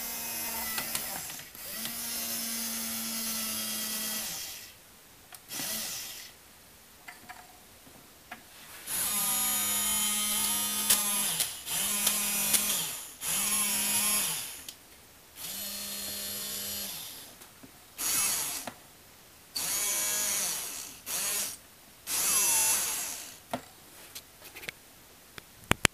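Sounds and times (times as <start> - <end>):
small motors buzzing with gear whine: 0.0 - 4.8, 5.5 - 6.4, 8.9 - 14.7, 15.4 - 17.3, 18.0 - 18.7, 19.6 - 23.4.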